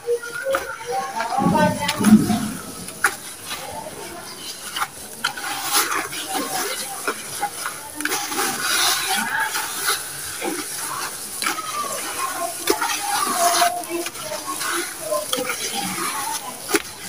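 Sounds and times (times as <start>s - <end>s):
hands kneading wet sand mix: 3.6s - 17.0s.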